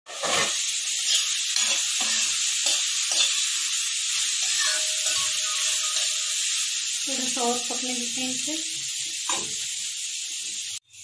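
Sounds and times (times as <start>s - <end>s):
metal spoon scraping a pan: 0.1s - 7.0s
vegetables sizzling in a pan: 0.1s - 11.0s.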